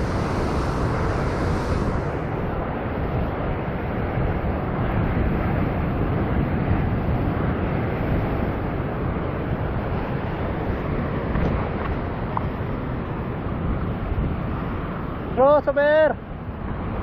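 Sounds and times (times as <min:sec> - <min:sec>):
surf breaking over rocks: 0:00.0 - 0:13.0
wind buffeting microphone: 0:00.0 - 0:15.4.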